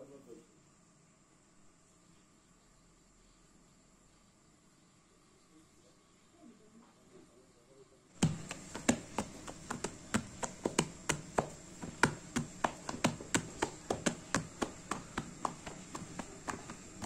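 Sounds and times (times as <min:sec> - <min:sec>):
hands patting dough: 0:08.2 - 0:17.0.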